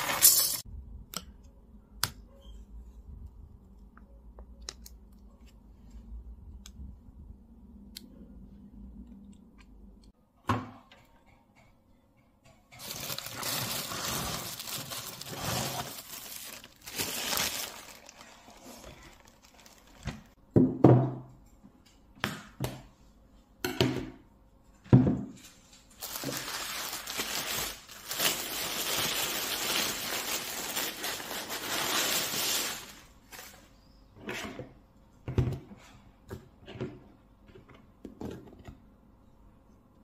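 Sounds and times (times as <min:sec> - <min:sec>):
plastic bread bag crinkling: 0:00.0 - 0:00.6, 0:12.8 - 0:20.4, 0:25.9 - 0:33.6.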